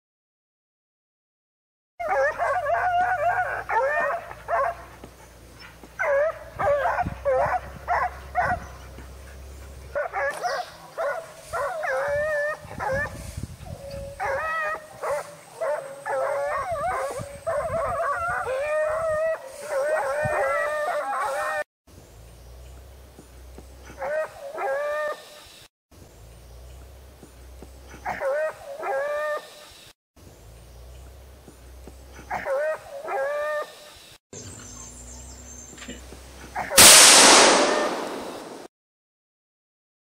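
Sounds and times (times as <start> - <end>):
dogs howling: 2.0 - 5.0, 5.9 - 13.2, 13.8 - 21.7, 24.0 - 25.2, 28.1 - 29.5, 32.3 - 33.8
hunting dogs baying and yelping: 2.0 - 21.7, 23.8 - 25.4, 27.7 - 29.8, 31.8 - 36.9.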